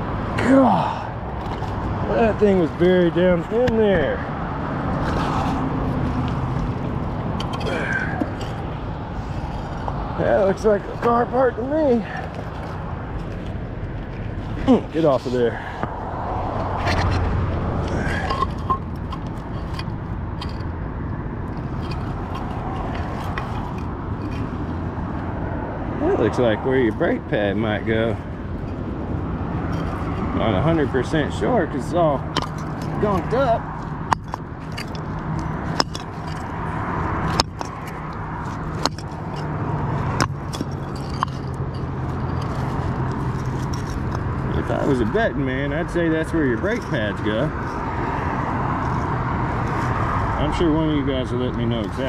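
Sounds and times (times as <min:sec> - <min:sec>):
low outdoor rumble: 0:00.0 - 0:52.0
vehicle engine humming: 0:00.0 - 0:52.0
metal part clicks and scrapes: 0:04.9 - 0:11.2, 0:12.2 - 0:25.3, 0:28.5 - 0:45.1, 0:45.9 - 0:50.2.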